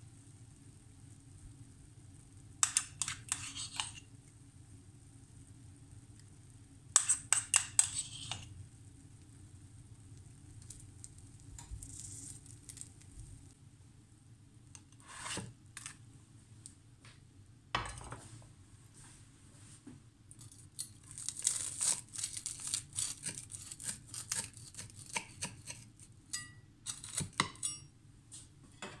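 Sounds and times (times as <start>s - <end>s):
metal spoon scraping frying pan: 2.6s - 4.1s, 7.0s - 8.5s, 15.0s - 15.9s.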